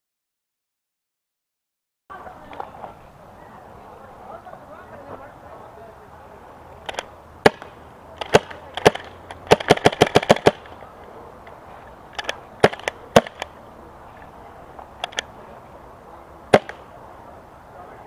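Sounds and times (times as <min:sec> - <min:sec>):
paintball markers firing: 0:06.8 - 0:10.8, 0:12.2 - 0:13.5, 0:16.5 - 0:16.8.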